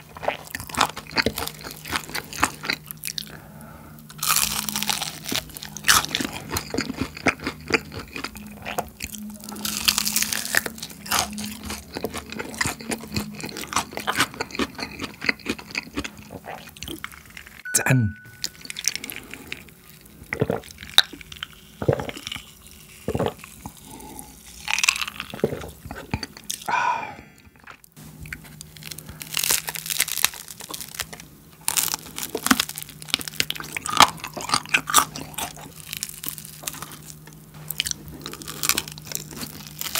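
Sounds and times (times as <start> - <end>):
fried chicken crunching: 0.0 - 17.6, 18.5 - 26.7, 27.6 - 39.9
person drinking: 25.3 - 27.8.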